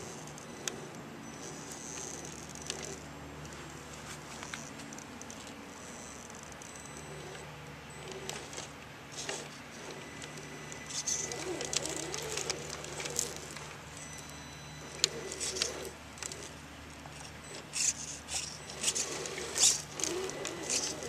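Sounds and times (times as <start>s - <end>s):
electric motor and gearbox whine: 0.0s - 21.0s
tyres clicking and scraping on stone: 8.0s - 13.7s, 17.2s - 21.0s.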